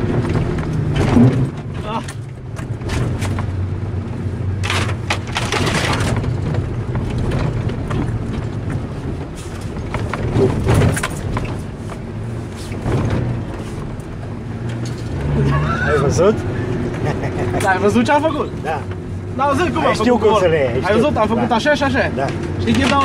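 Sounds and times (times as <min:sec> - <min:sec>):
vehicle body knocks and thumps: 0:00.0 - 0:03.7, 0:04.6 - 0:14.2
car engine running: 0:00.0 - 0:23.0.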